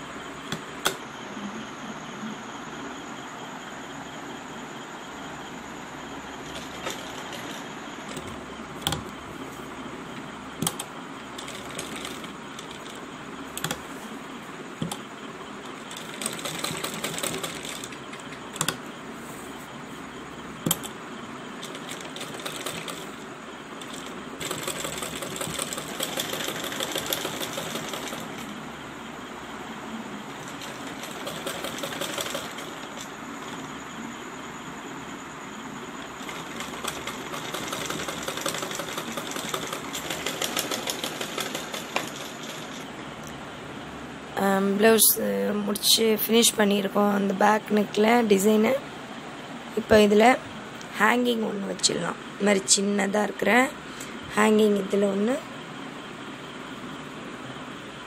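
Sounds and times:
sewing machine stitching fabric: 0:06.4 - 0:09.2, 0:10.6 - 0:13.9, 0:14.8 - 0:18.8, 0:21.6 - 0:23.2, 0:23.8 - 0:28.6, 0:30.3 - 0:33.8, 0:36.1 - 0:42.9.

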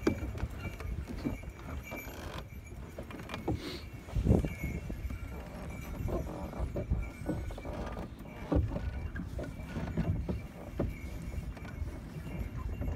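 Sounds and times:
hoof thuds on snow: 0:00.0 - 0:12.9
sleigh knocking: 0:00.0 - 0:12.9.

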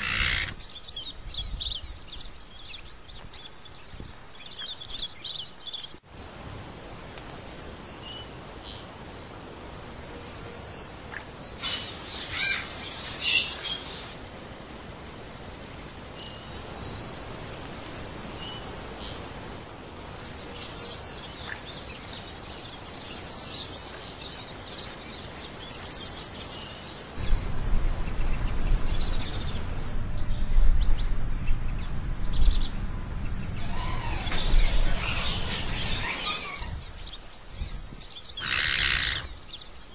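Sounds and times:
bird high trill: 0:00.0 - 0:00.6
whistled bird notes: 0:27.0 - 0:32.7
low rumble: 0:27.2 - 0:37.2.

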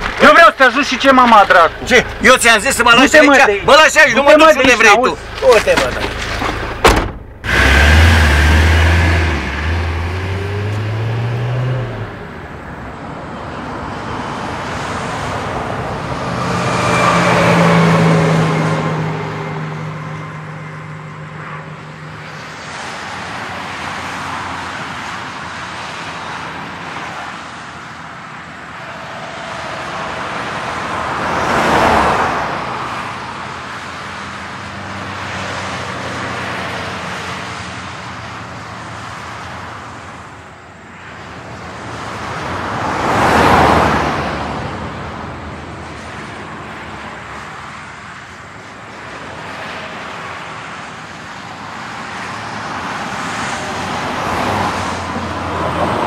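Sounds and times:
van engine revving: 0:00.0 - 0:12.5
vehicles passing by: 0:00.0 - 0:56.0.

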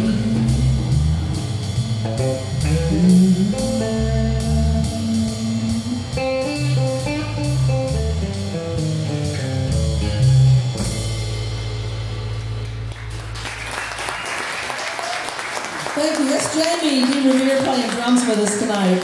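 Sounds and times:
blues-rock band playing: 0:00.0 - 0:14.1.

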